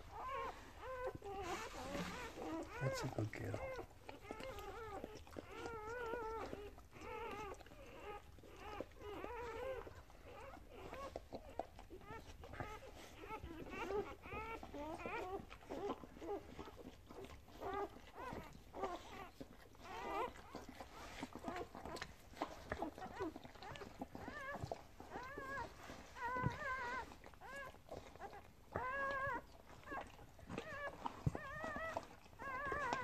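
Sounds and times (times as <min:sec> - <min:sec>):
puppies squeaking and crying: 0:00.0 - 0:33.0.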